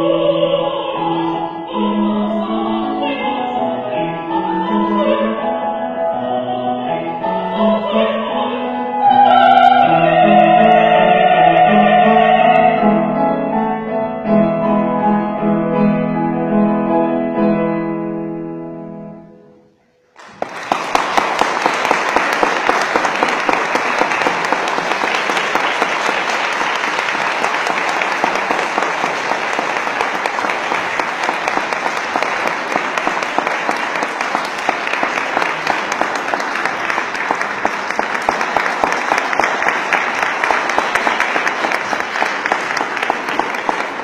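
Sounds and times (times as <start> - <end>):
audience applause: 20.2 - 44.0.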